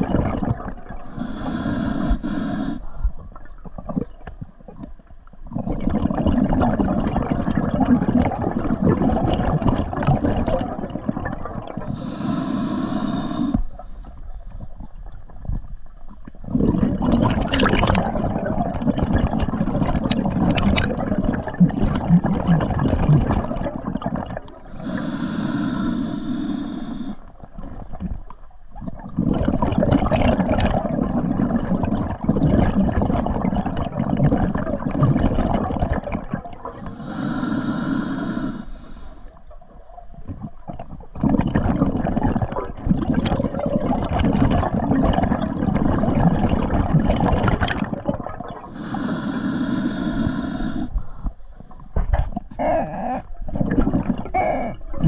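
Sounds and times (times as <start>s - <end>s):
exhaled bubbles rushing underwater: 0.0s - 55.0s
hissing regulator inhalation: 1.0s - 3.1s, 11.8s - 14.2s, 24.6s - 27.3s, 36.6s - 39.4s, 48.6s - 51.4s.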